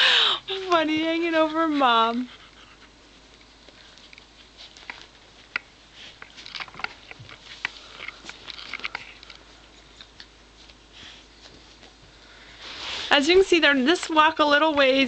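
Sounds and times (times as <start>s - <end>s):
dog licking puppies: 0.6s - 12.3s.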